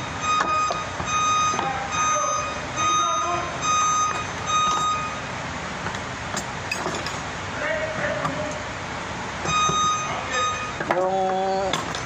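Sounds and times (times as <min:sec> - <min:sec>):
vehicle reversing alarm beeping: 0:00.0 - 0:05.6, 0:09.4 - 0:12.0.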